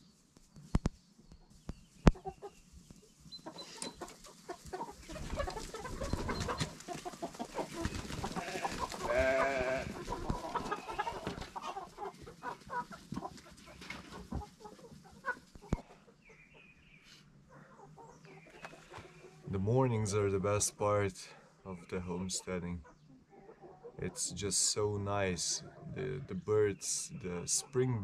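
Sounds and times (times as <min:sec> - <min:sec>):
chickens clucking and scuffling: 0:00.0 - 0:28.0
goat bleating: 0:08.4 - 0:10.0.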